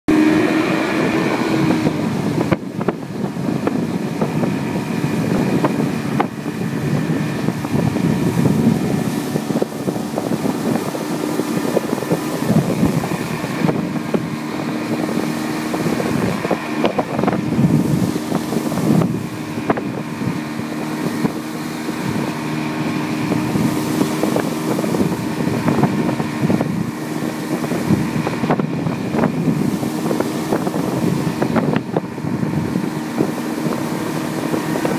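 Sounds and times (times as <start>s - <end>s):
boat wake rushing: 0.1s - 34.9s
outboard motor running: 0.1s - 34.9s
wind buffeting microphone: 0.1s - 34.9s.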